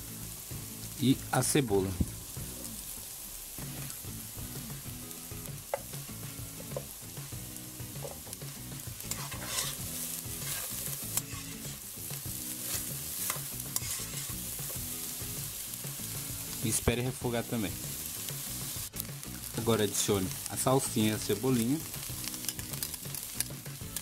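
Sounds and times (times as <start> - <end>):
vegetables sizzling in hot fat: 0.0 - 24.0
utensil stirring and scraping: 9.0 - 11.9, 12.5 - 14.9.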